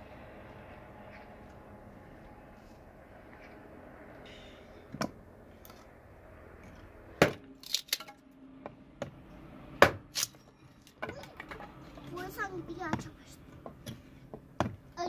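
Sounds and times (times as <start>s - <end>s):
hatchet chopping wood: 7.2s - 7.5s, 9.8s - 10.3s, 13.8s - 14.8s.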